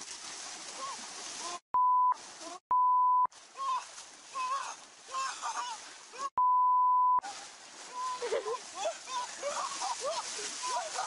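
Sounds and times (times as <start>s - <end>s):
censor bleeps: 1.8s - 3.3s, 6.4s - 7.2s.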